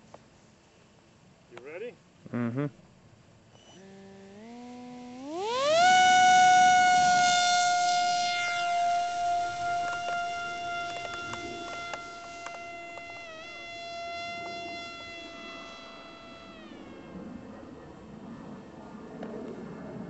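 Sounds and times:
model plane motor whining: 3.6 - 19.4.

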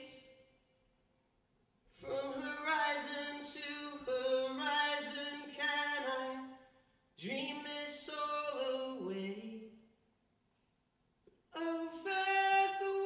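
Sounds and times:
man singing unaccompanied: 2.0 - 6.6, 7.2 - 9.8, 11.5 - 13.0.

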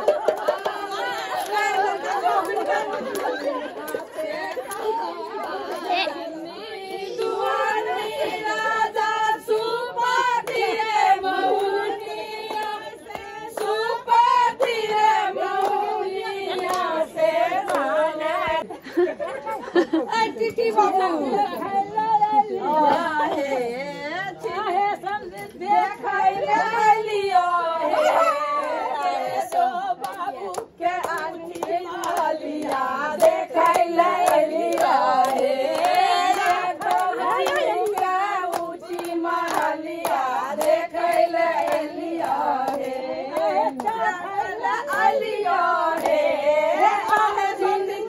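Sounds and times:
hand claps: 0.0 - 5.9, 10.4 - 10.7, 11.4 - 17.0, 17.6 - 17.9, 29.0 - 47.5
women singing folk song: 0.0 - 18.9, 20.0 - 48.0.

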